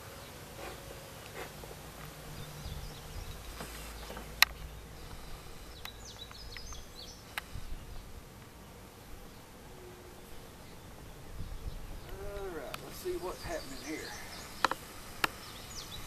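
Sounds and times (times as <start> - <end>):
honey bees humming: 0.0 - 16.0
bird chirps: 2.3 - 8.1, 9.3 - 16.0.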